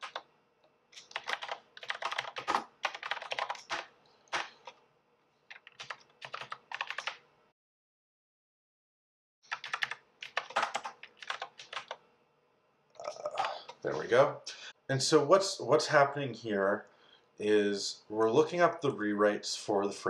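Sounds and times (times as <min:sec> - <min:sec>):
typing on a keyboard: 0:00.0 - 0:00.3, 0:01.0 - 0:04.8, 0:05.5 - 0:07.2, 0:09.5 - 0:12.0.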